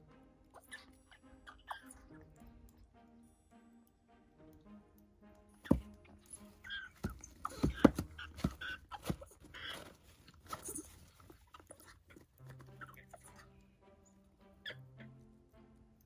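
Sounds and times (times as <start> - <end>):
short squeaky bird calls: 5.6 - 9.8, 14.0 - 15.2.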